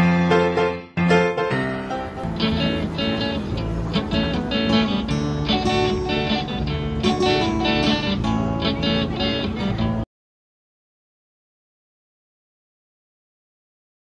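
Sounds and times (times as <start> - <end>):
strummed guitar chords: 1.0 - 10.0.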